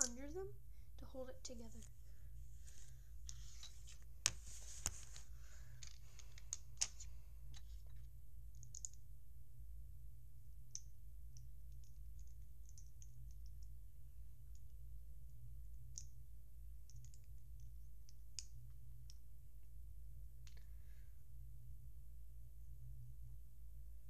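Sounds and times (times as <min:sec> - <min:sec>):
steady low hum: 0:00.0 - 0:24.0
plastic bricks clicking: 0:05.8 - 0:07.7, 0:08.6 - 0:09.0.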